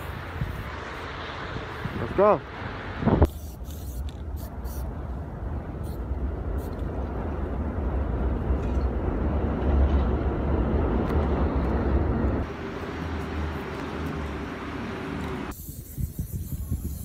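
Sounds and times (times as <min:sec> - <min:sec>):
low rumble of city ambience: 0:00.0 - 0:17.0.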